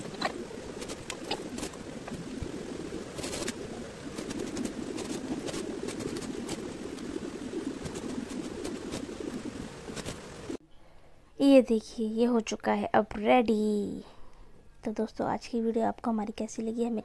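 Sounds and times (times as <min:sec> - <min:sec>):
steady low hum: 0:00.0 - 0:11.4.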